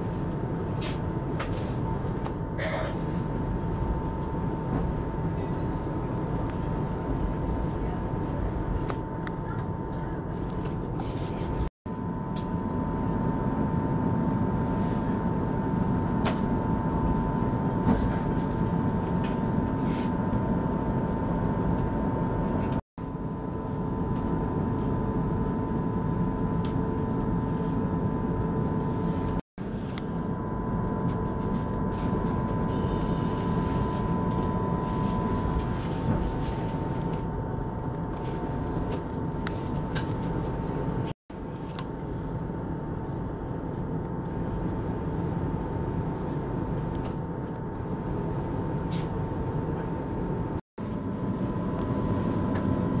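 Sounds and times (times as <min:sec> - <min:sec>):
thin steady hum: 0:00.0 - 0:53.0.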